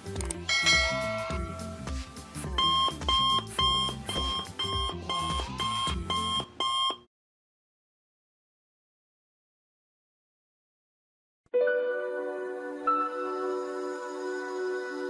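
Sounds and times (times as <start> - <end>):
background music: 0.0 - 7.0, 11.6 - 15.0
ringing chime: 0.5 - 1.8
alarm clock beeping: 2.5 - 7.1.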